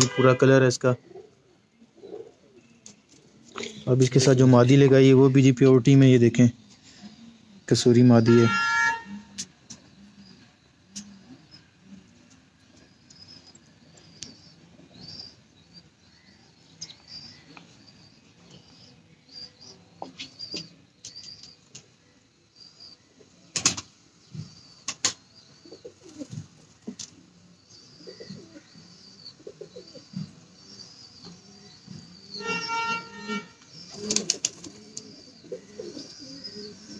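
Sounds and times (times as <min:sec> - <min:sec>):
pigeon cooing: 0:01.0 - 0:02.6, 0:25.6 - 0:36.9.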